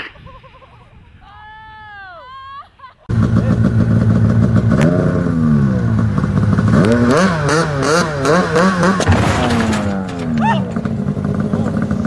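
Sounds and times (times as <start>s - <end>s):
snowmobile engines revving: 3.1s - 12.0s.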